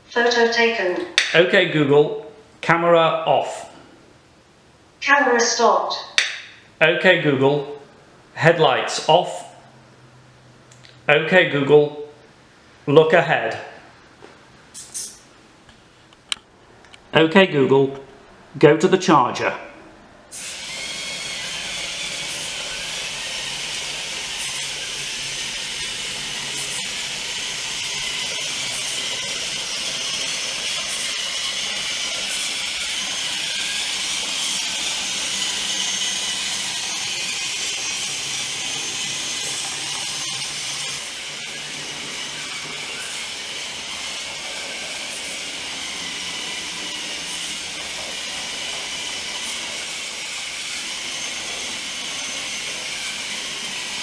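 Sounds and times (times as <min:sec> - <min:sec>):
robot motors and treads running: 0:20.3 - 0:54.0.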